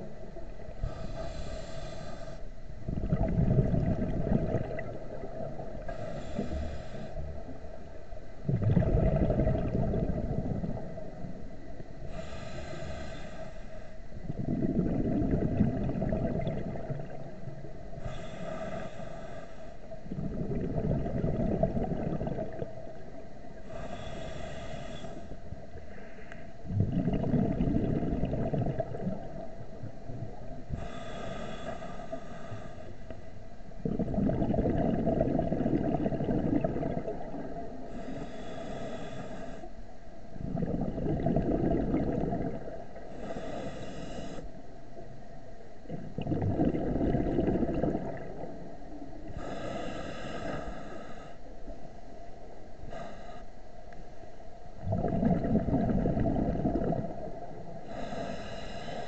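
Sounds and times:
regulator inhale hiss: 0.6s - 2.6s, 5.6s - 7.9s, 12.0s - 14.2s, 17.9s - 20.1s, 23.5s - 26.6s, 30.7s - 33.5s, 37.7s - 40.2s, 43.0s - 44.6s, 49.2s - 52.1s, 52.8s - 53.9s, 57.7s - 59.0s
exhaled bubbles gushing: 2.8s - 5.9s, 8.4s - 11.5s, 14.2s - 17.6s, 20.0s - 23.1s, 26.7s - 30.7s, 33.8s - 38.0s, 40.4s - 43.1s, 45.8s - 48.8s, 54.8s - 58.1s.

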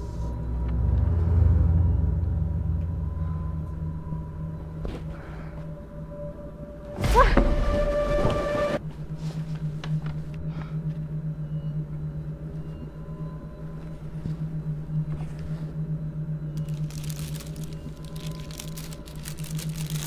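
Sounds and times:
steady low hum: 0.0s - 20.0s
crinkling handling noise: 16.6s - 20.0s.

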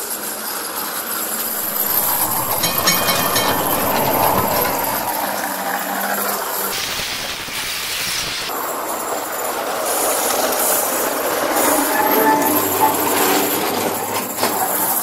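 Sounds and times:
rumbling hiss of wheels on track: 1.3s - 14.0s
high squeal: 1.4s - 6.1s.

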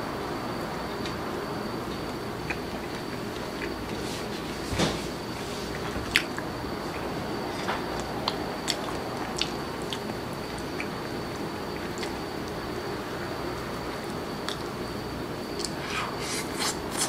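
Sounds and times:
chewing with mouth closed: 5.6s - 12.8s, 15.5s - 17.0s
wet crunches and mouth clicks: 5.7s - 12.8s, 13.5s - 14.7s, 15.5s - 15.8s.

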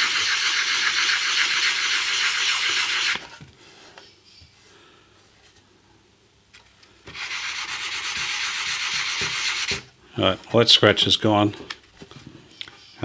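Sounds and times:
sandpaper scratching rasp: 0.0s - 3.2s, 7.1s - 9.8s.

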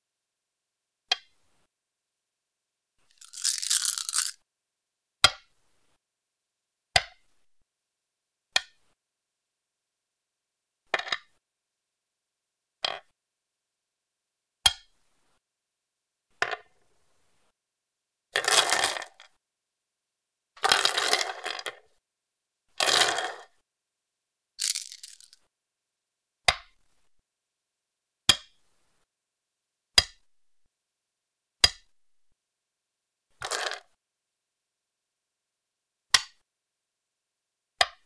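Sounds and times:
stones rattling together: 3.1s - 4.4s, 24.6s - 25.4s
stone clicking on wooden board: 24.6s - 25.4s.

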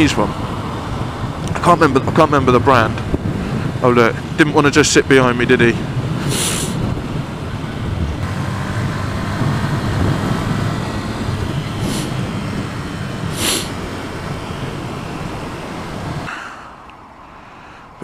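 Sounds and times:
wind noise: 0.0s - 16.3s
tyres on wet road: 0.0s - 18.0s
brief hisses: 13.4s - 13.7s.

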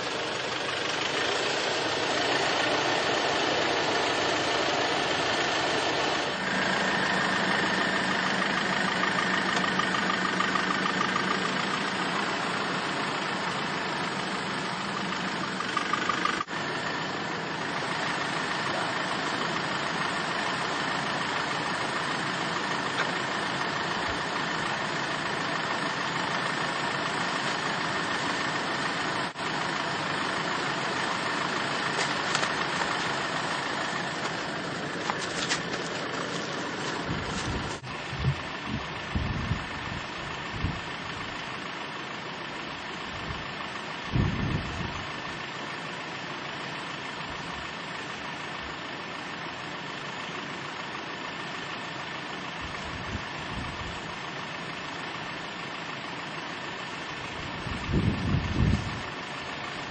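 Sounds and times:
engine idling: 0.0s - 59.9s
wind gusts on microphone: 37.1s - 40.8s, 57.6s - 59.1s.

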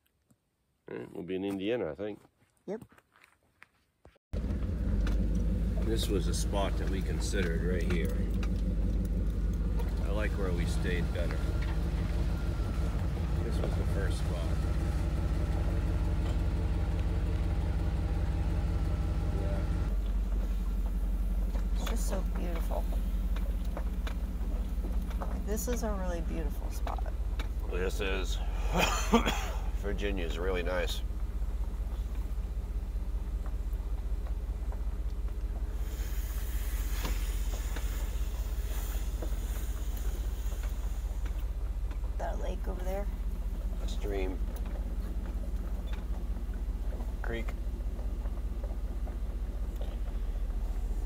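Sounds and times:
truck engine and road rumble: 3.9s - 51.0s
wind hiss: 35.7s - 41.3s.

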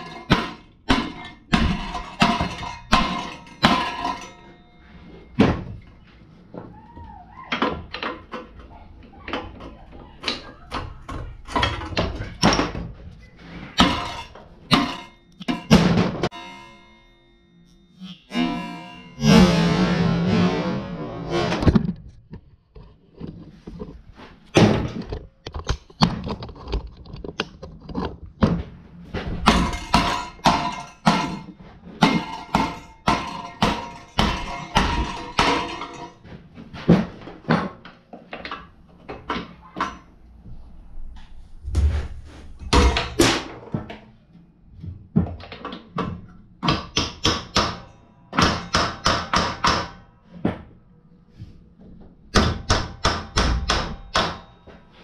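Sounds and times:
hand tools clanking on metal: 0.0s - 5.5s, 7.8s - 17.3s, 29.4s - 36.4s.

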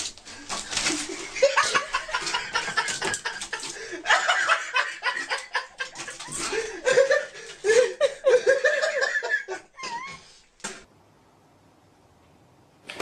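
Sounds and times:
people laughing: 0.9s - 10.1s.

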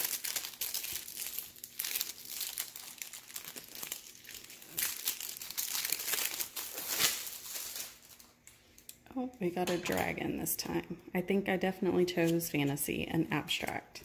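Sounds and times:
packaging crinkling and rustling: 0.0s - 9.0s.

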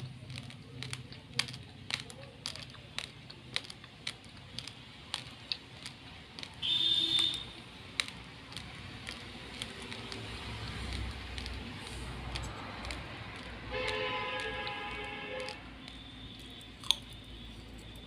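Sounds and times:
chewing crunchy rice: 0.0s - 18.0s.

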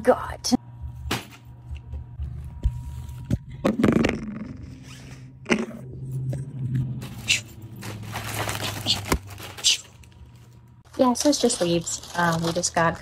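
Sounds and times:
plastic bags rustling and crinkling: 7.0s - 13.0s.

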